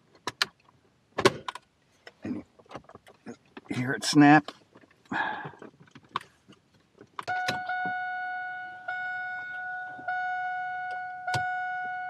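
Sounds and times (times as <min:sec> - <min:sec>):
dashboard warning chime: 0:07.3 - 0:12.0.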